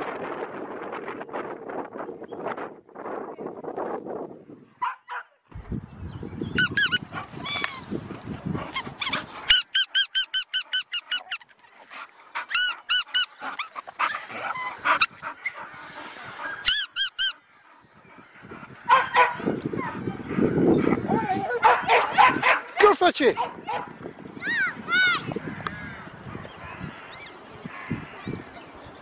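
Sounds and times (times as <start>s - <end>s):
squeaky toy ball squeaking: 9.0s - 11.4s, 16.7s - 17.4s.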